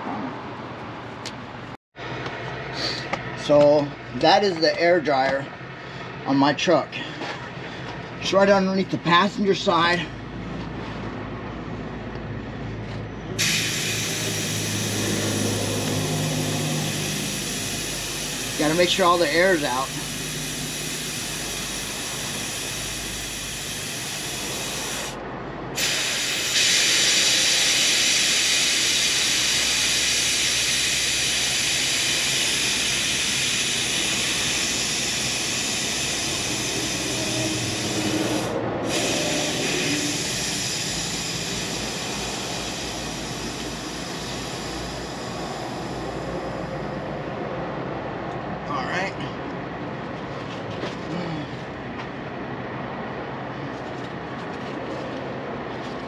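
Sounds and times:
compressed air hissing: 13.4s - 25.2s, 25.8s - 47.1s.

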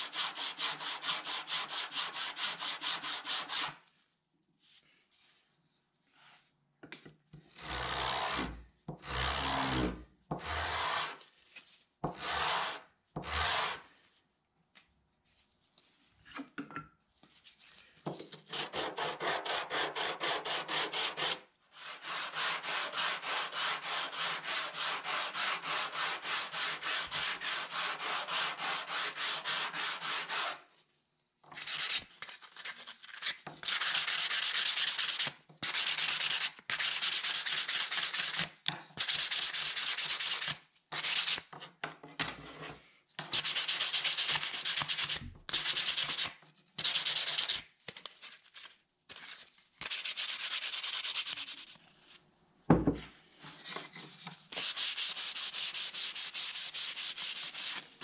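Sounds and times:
wood rubbing on sandpaper: 0.0s - 3.8s, 10.4s - 11.2s, 12.2s - 13.8s, 18.5s - 30.6s, 49.8s - 51.8s, 54.5s - 58.0s.

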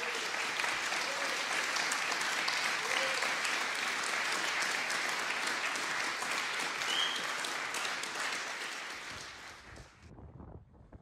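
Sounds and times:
crowd applauding: 0.0s - 10.0s
high whistle: 6.8s - 7.3s.

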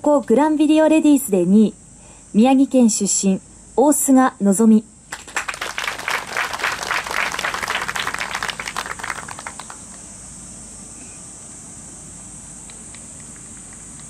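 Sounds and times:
crowd applauding: 5.1s - 10.1s.

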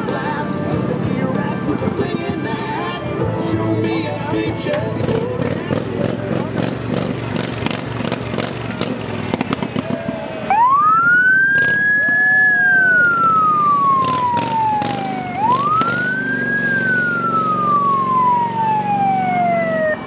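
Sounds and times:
wailing emergency siren: 10.4s - 20.0s.

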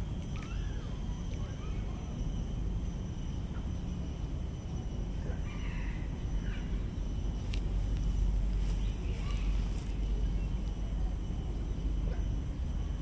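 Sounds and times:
low background rumble: 0.0s - 13.0s
bird calling: 5.2s - 7.0s, 8.2s - 11.2s.

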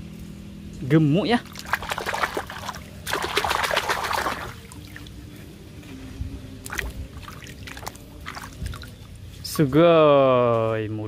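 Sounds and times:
hand splashing toy in water: 1.5s - 4.6s.

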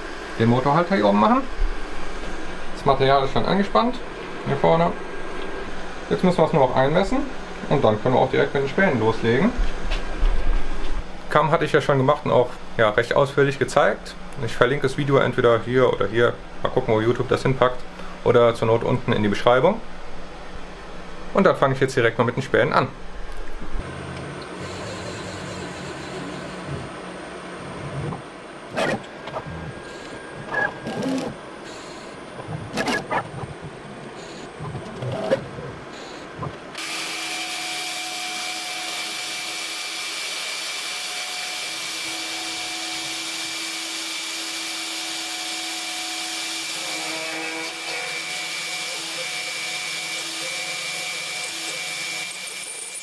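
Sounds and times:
router spindle whining: 23.8s - 53.0s
stepper motor bursts with clicks: 27.9s - 32.1s
drill cutting into metal: 30.8s - 32.1s, 36.8s - 53.0s.

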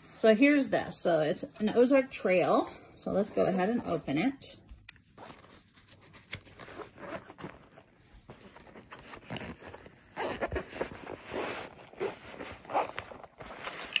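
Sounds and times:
fabric case being handled: 5.1s - 14.0s
zipper being drawn open: 8.8s - 14.0s.

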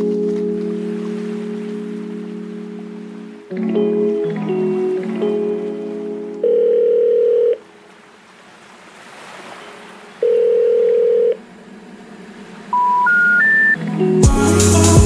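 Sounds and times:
electronic telephone tones: 6.4s - 7.7s, 10.2s - 11.4s, 12.7s - 13.8s.

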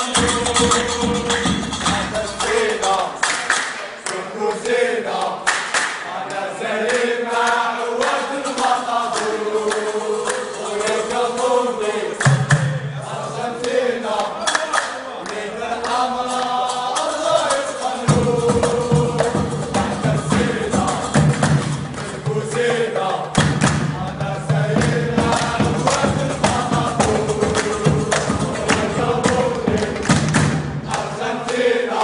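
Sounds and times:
sharp percussion hits: 0.0s - 3.2s, 16.4s - 31.2s
chorus of voices singing: 0.0s - 32.0s.

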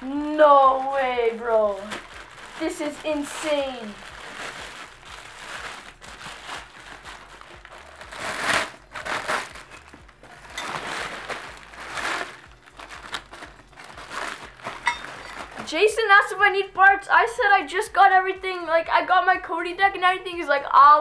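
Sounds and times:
plastic wrap crinkling: 0.0s - 16.0s.

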